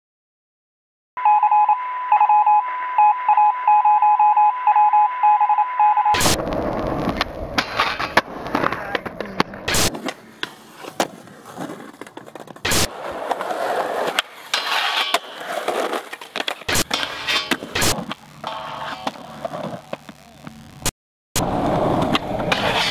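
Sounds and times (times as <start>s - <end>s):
telephone line tone: 1.2s - 6.2s
skateboard popping and landing: 6.2s - 20.3s, 21.4s - 22.9s
skateboard wheels rolling on concrete: 6.2s - 22.9s.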